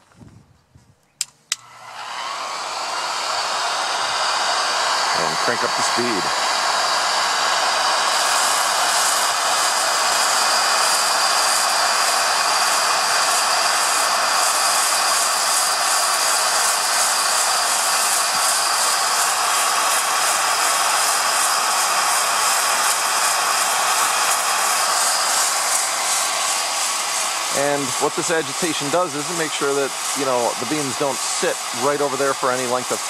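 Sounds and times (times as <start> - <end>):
cordless drill turning: 1.2 - 33.0
heat gun blowing: 1.2 - 33.0
coffee beans tumbling: 23.5 - 33.0.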